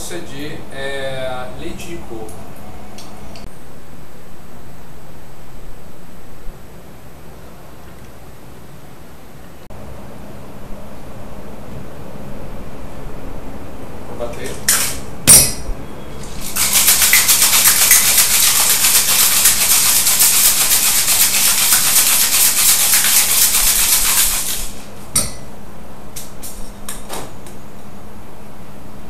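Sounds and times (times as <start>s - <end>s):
ice rattling in cocktail shaker: 16.2s - 24.9s.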